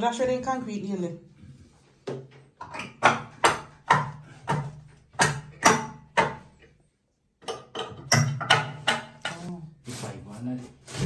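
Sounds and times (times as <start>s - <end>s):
sharp knocks on wooden board: 2.8s - 6.5s, 7.4s - 9.4s.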